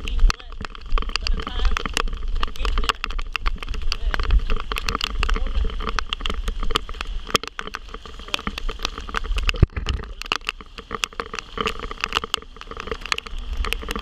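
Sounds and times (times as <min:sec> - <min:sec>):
raindrops tapping on camera: 0:00.0 - 0:14.0
wind rumble on microphone: 0:00.0 - 0:14.0.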